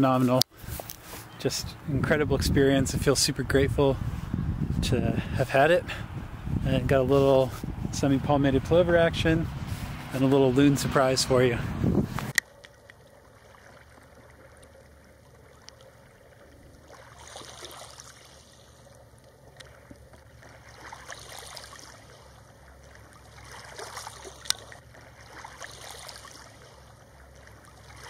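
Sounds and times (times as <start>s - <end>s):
water lapping and trickling: 0.0s - 28.0s
small sharp ticks: 24.4s - 24.7s.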